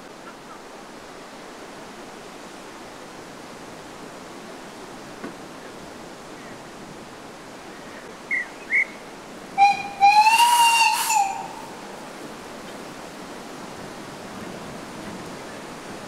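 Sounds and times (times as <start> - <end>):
guard's whistle blasts: 9.6 - 11.5
steam locomotive whistle: 9.6 - 11.8.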